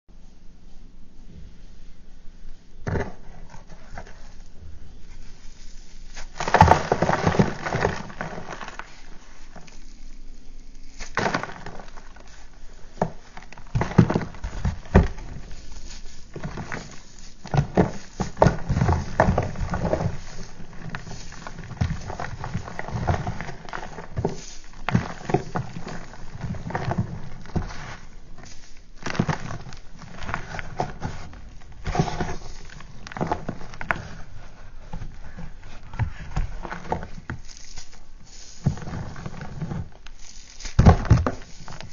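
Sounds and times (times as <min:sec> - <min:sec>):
chalk blocks crunching by hand: 0:05.6 - 0:41.9
crumbled chalk falling into tray: 0:36.4 - 0:41.9.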